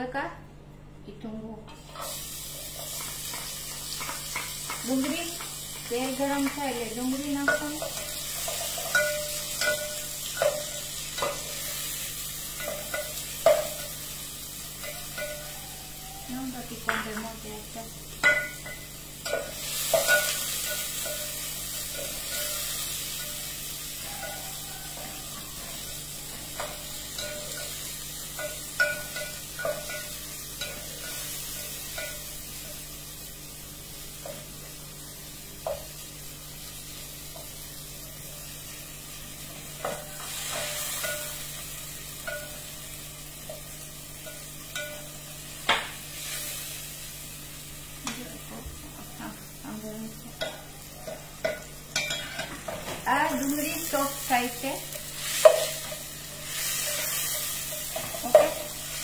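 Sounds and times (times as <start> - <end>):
onions sizzling in oil: 1.8 - 59.0.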